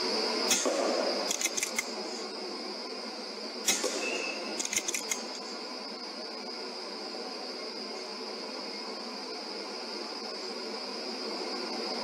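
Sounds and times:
high-pitched hiss: 0.0 - 12.0
sharp mechanical clicks: 0.5 - 2.0, 3.7 - 5.4.

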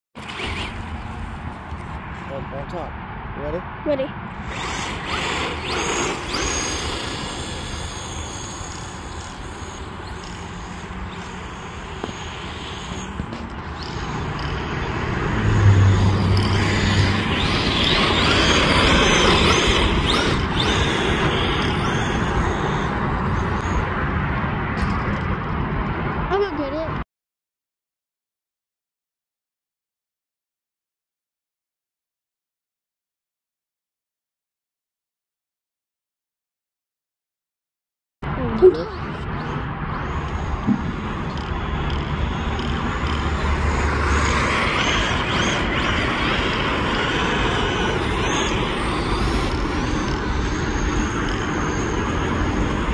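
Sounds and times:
rc car motor whining: 0.2 - 1.4, 4.3 - 24.1, 38.4 - 52.9
steady noisy rush: 4.2 - 26.4, 39.0 - 52.9
tyres churning through sand: 4.4 - 24.0, 38.7 - 52.9.

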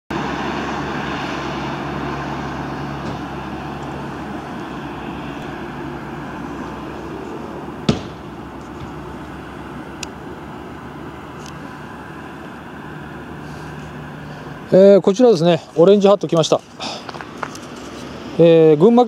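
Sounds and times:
low hum: 0.1 - 14.7
vehicle engine and road noise: 0.1 - 19.0.

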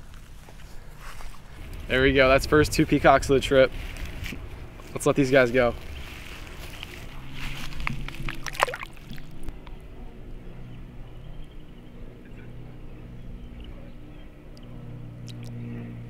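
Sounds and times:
steady low hum: 0.0 - 16.0
small water splashes: 8.1 - 9.5
water sloshing and dripping: 8.1 - 9.5.

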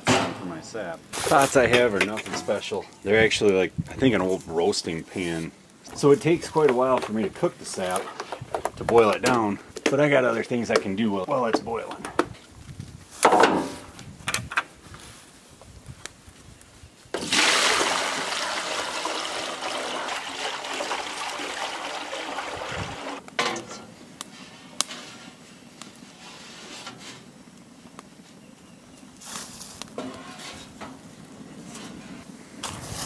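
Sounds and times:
liquid pouring into metal pan: 17.2 - 23.2.

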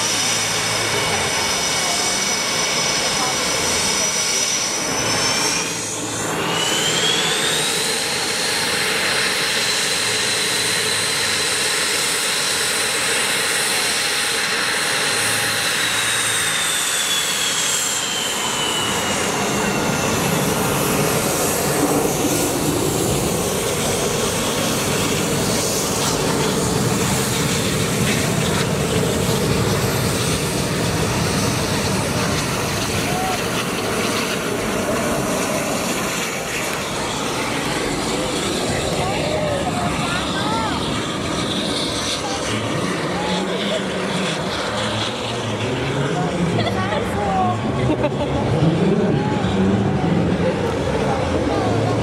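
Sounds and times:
jet engine high whine: 0.0 - 52.0
jet engine roar: 0.0 - 52.0.

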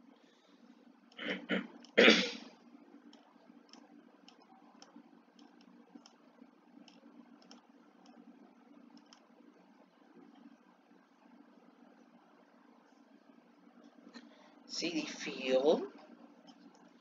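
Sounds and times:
low steady hum: 0.0 - 17.0
person clearing throat: 1.2 - 2.4
computer mouse clicks: 3.1 - 6.2, 6.8 - 8.2, 8.9 - 9.3.

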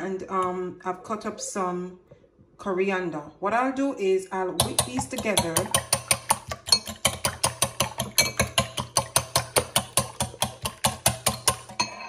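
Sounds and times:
whisk clinking in a glass bowl: 4.6 - 12.0.

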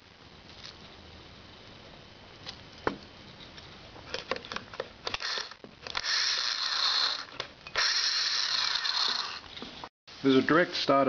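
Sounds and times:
starter motor whirring: 5.1 - 9.5.

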